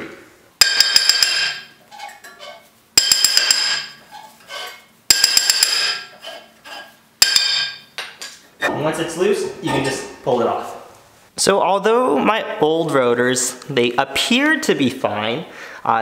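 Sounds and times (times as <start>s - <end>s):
hammer tapping metal rotor: 0.6s - 1.7s, 3.0s - 4.0s, 5.1s - 6.1s, 7.2s - 7.8s
metal ringing: 0.6s - 4.0s, 5.1s - 6.4s, 7.2s - 7.9s.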